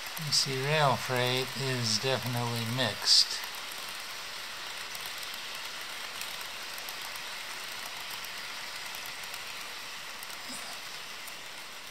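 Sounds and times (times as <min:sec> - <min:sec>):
model train whirring on track: 0:00.0 - 0:11.9.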